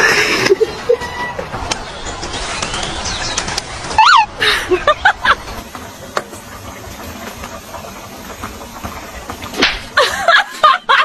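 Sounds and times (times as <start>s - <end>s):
steam hissing from rice cooker: 4.4s - 11.0s.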